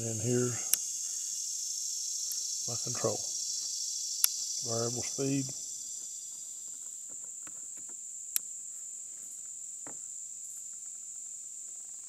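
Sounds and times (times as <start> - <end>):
insects chirring: 0.0 - 12.0
sharp click: 4.2 - 4.5.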